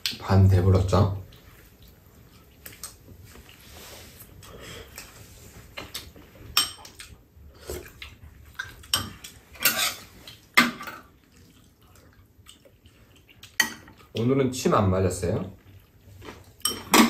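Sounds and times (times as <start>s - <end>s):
utensils clinking against bowls: 16.6s - 17.0s.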